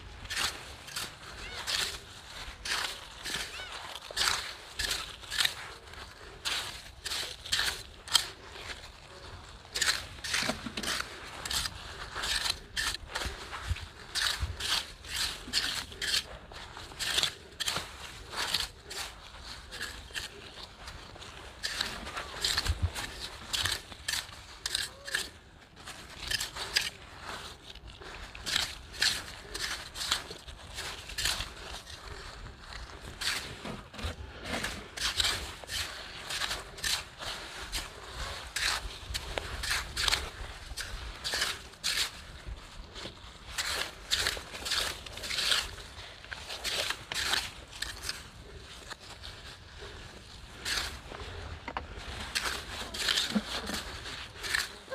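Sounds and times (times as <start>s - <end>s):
hand rake scraping wet sand: 0.0s - 54.9s
metal rake scraping wet sand: 0.2s - 8.3s, 33.1s - 42.2s, 52.1s - 54.9s.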